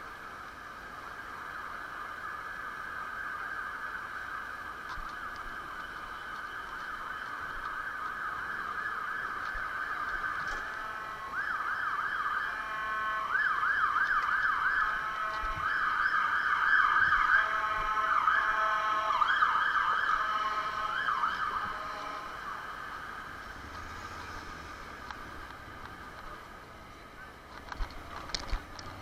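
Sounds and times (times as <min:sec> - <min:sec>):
stepped alternating siren tone: 0:00.0 - 0:27.4
emergency siren yelping: 0:01.5 - 0:26.4.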